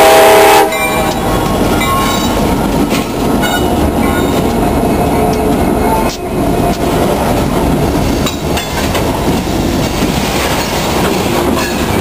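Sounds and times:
train horn blast: 0.0 - 1.3
diesel locomotives rumbling past: 0.0 - 12.0
wheels clicking over rail joints: 0.7 - 12.0.

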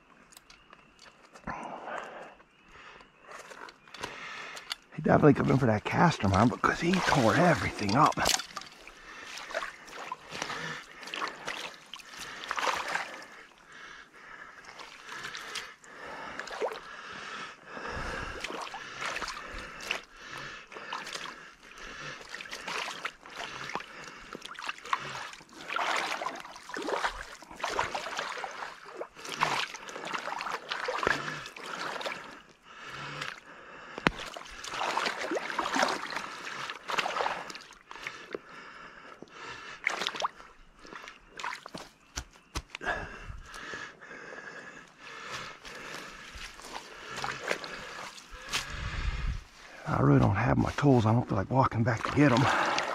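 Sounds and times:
creek water trickling: 0.0 - 52.9
boots squelching in mud: 5.4 - 13.7, 14.6 - 15.7, 18.2 - 32.4, 34.0 - 38.2, 39.8 - 43.7, 45.2 - 50.9, 51.8 - 52.9.

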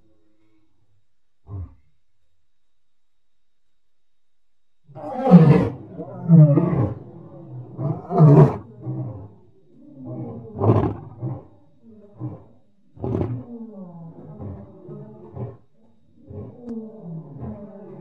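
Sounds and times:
lion grunting: 1.4 - 1.9, 4.9 - 18.0
lion roaring: 1.4 - 1.9, 4.9 - 18.0.

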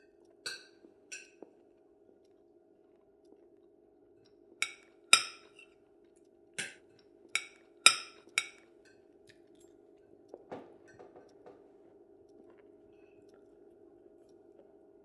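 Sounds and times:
faint steady hum: 0.0 - 15.0
cutlery clinking on crockery: 4.6 - 5.6, 7.4 - 9.0.

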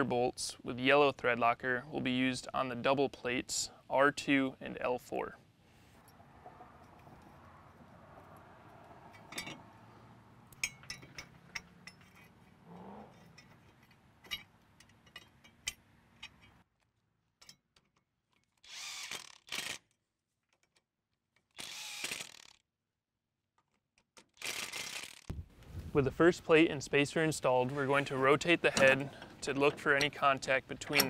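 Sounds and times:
metallic clicks and clinks: 9.1 - 9.6, 10.5 - 12.5, 13.1 - 16.6
impact driver bursts: 21.6 - 22.5.

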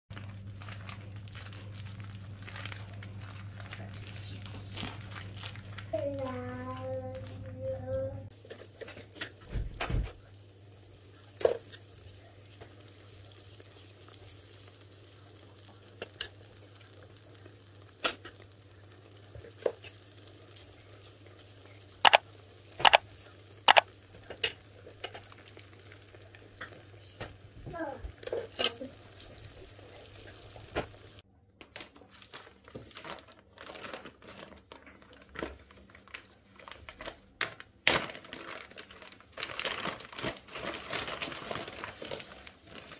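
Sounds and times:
plastic bag crinkling: 0.1 - 7.4, 27.8 - 31.2, 31.8 - 42.9
batter sizzling in hot oil: 8.3 - 31.2.

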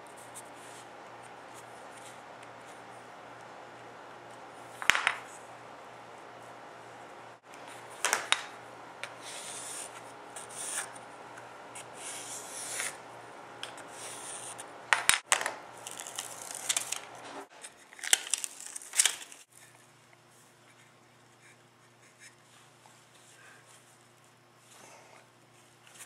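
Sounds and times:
tape tearing: 15.8 - 17.2, 17.9 - 19.5.

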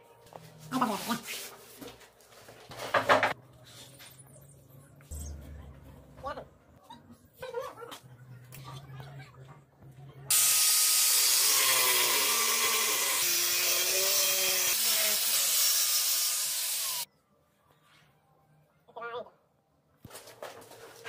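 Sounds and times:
electric power tool running: 10.3 - 17.1.

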